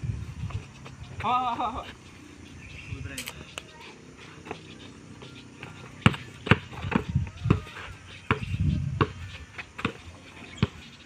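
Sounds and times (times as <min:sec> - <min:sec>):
basketball bouncing on dirt: 0:04.4 - 0:11.0.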